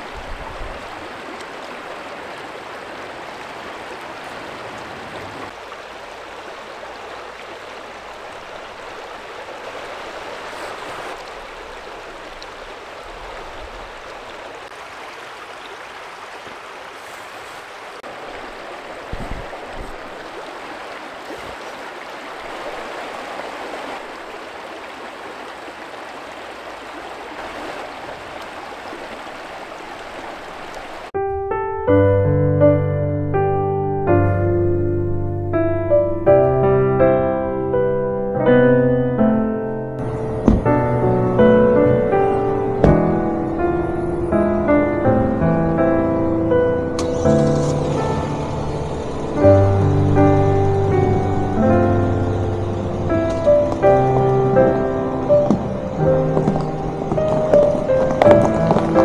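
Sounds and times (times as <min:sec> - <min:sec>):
stream running over stones: 0:00.0 - 0:31.2, 0:40.0 - 0:59.0
piano music: 0:31.2 - 0:59.0
brief low thump: 0:40.4 - 0:40.7.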